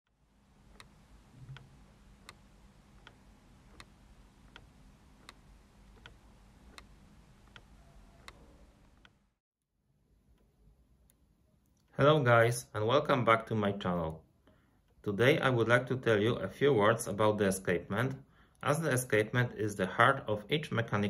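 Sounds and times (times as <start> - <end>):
clock ticking: 0.7 - 2.4, 3.0 - 9.2.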